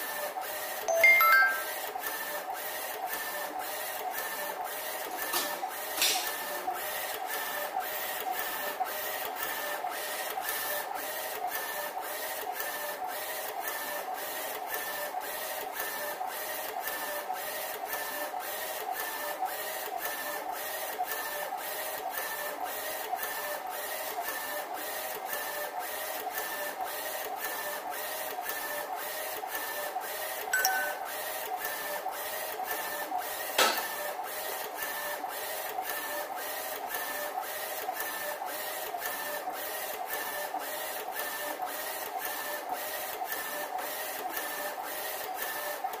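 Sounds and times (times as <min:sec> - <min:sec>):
short tone: 0:00.9 - 0:01.8, 0:30.6 - 0:31.2.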